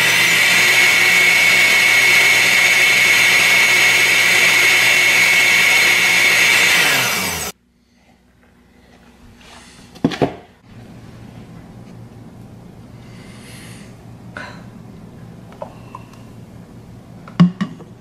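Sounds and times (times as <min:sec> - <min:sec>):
blender motor whining: 0:00.0 - 0:07.6.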